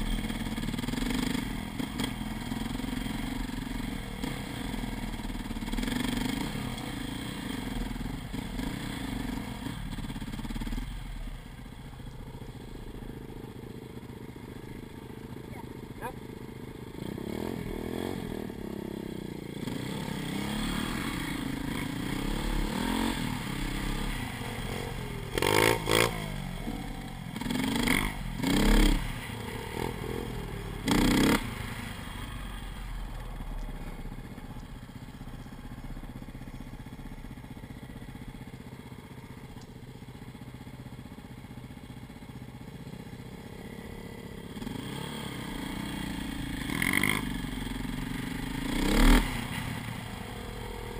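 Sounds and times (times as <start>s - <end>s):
dirt bike engines running: 0.0s - 50.9s
short loud engine revs: 17.0s - 33.0s, 44.5s - 50.9s.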